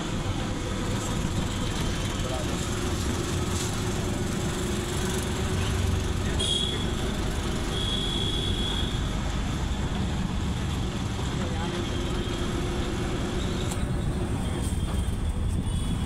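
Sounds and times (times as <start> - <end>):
street traffic rumble: 0.0 - 16.0.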